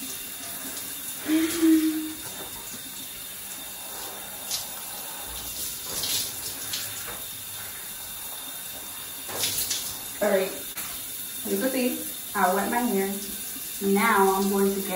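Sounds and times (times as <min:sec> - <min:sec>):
shower spraying on hair: 0:00.0 - 0:14.9.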